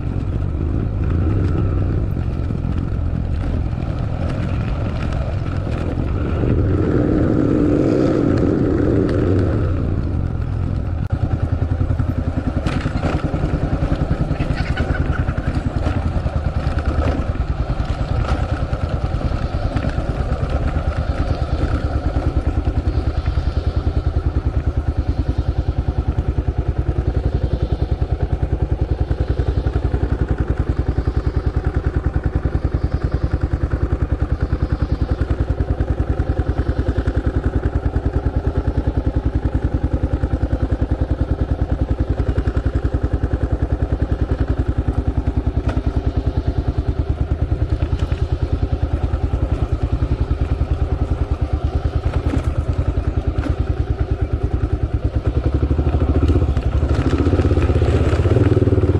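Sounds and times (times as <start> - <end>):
road knocks and rattles: 0.0 - 25.7, 35.8 - 58.9
vehicle engine running: 0.0 - 58.9.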